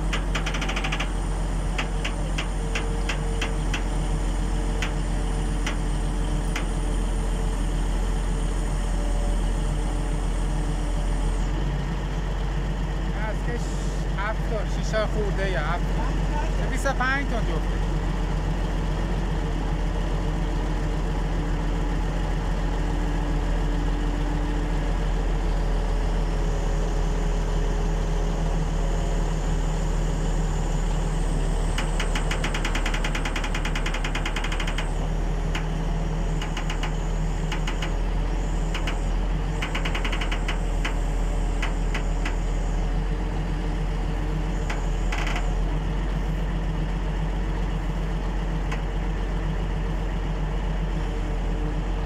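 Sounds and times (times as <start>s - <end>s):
rapid metallic clicking: 0.0s - 3.9s, 31.8s - 35.7s, 36.4s - 38.1s, 38.7s - 41.0s
heavy diesel engine running: 0.0s - 52.0s.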